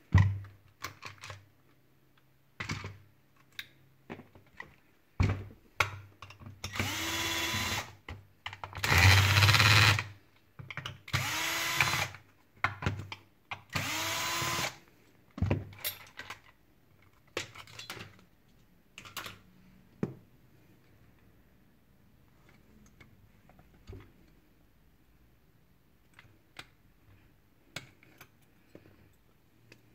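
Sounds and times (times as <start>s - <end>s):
cordless drill whining: 6.7s - 8.0s, 8.8s - 10.1s, 11.1s - 12.2s, 13.8s - 14.8s
clicks of plastic parts handled: 15.7s - 19.5s.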